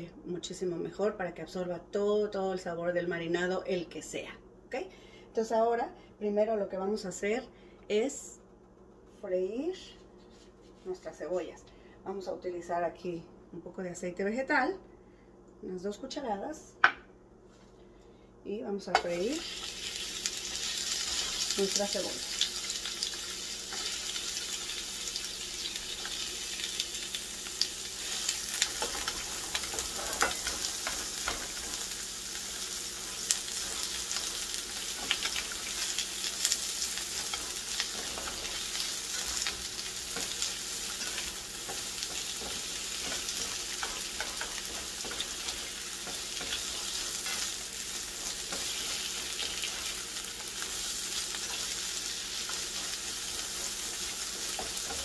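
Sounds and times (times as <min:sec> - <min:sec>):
onions sizzling in oil: 0:19.0 - 0:55.0
spatula clicking and scraping: 0:28.1 - 0:31.9, 0:33.0 - 0:50.6, 0:52.3 - 0:55.0.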